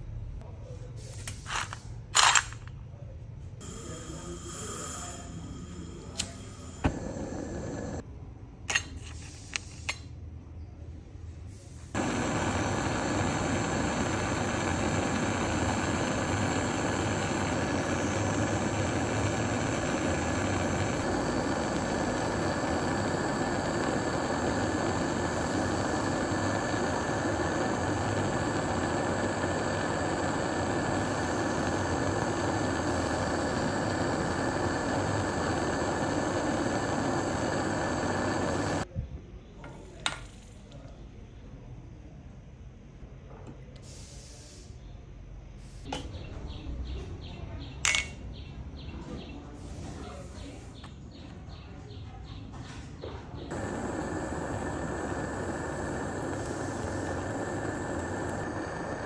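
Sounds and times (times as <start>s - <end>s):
gas torch burning: 3.6s - 8.1s, 11.5s - 38.9s, 53.3s - 59.0s.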